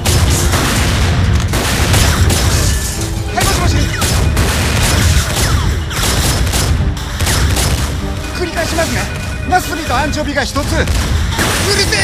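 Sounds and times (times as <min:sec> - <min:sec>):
rapid handgun fire: 0:00.0 - 0:02.8, 0:03.8 - 0:08.3, 0:10.9 - 0:12.0
loud film music score: 0:00.0 - 0:12.0.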